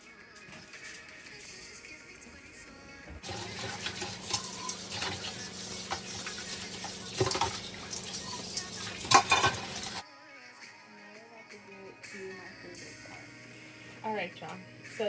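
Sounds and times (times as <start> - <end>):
dishes being scrubbed: 3.2 - 10.0
faucet running into steel sink: 3.2 - 10.0
dishes knocking together: 9.0 - 9.8.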